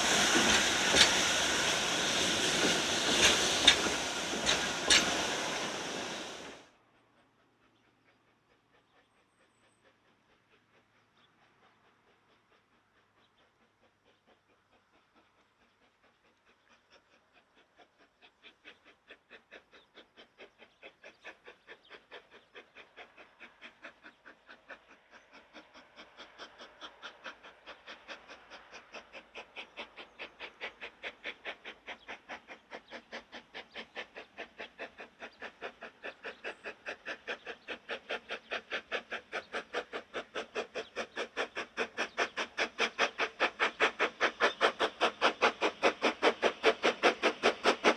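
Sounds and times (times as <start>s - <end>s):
steam locomotive chuffing: 0.0s - 47.9s.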